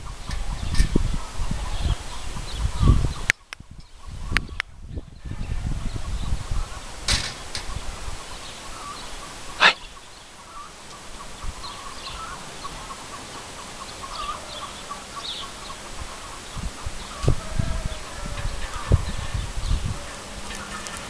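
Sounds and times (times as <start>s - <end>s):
wind rumble on microphone: 0.0s - 10.2s, 11.1s - 12.9s, 14.1s - 21.0s.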